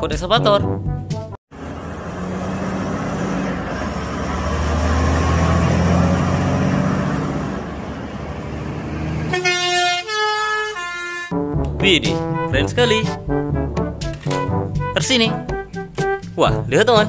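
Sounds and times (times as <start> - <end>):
tyre and road noise: 1.5 - 11.0
truck diesel engine humming: 1.5 - 11.5.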